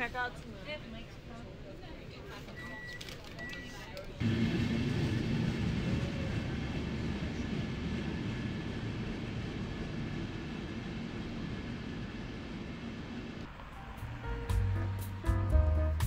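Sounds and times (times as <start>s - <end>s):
underground train pulling out: 4.2s - 15.3s.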